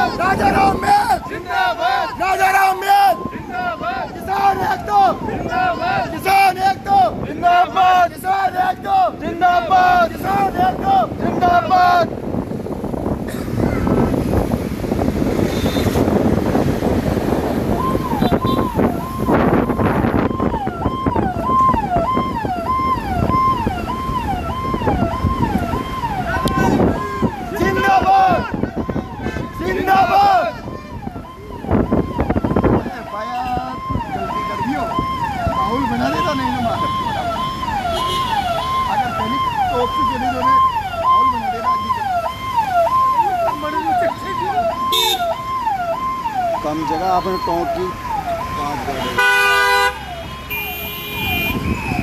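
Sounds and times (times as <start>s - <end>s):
electronic vehicle siren: 0.0s - 11.9s, 17.2s - 52.0s
moving vehicle rumble: 0.0s - 52.0s
wind: 0.0s - 52.0s
faint voices: 25.8s - 44.9s.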